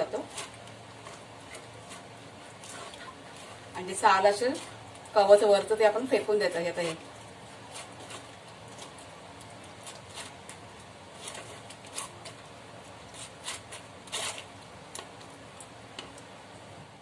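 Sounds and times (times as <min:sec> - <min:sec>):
spoon scraping a strainer: 0:13.1 - 0:14.5.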